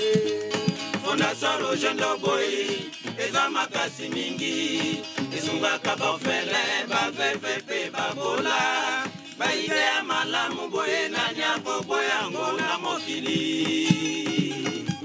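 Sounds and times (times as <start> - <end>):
guitar accompaniment: 0.0 - 15.0
men singing in chorus: 0.0 - 15.0
steady rhythmic beat: 0.0 - 15.0.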